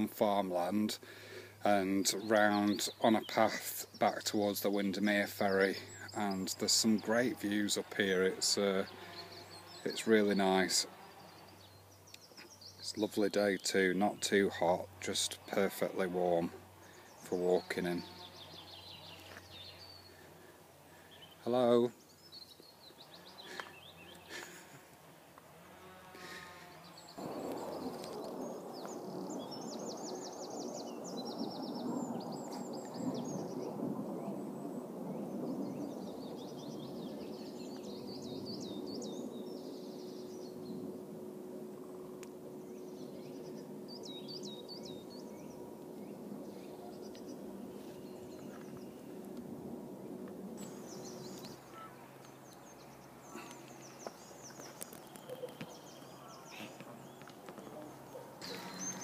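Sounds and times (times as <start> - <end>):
songbirds twittering: 0.0 - 59.0.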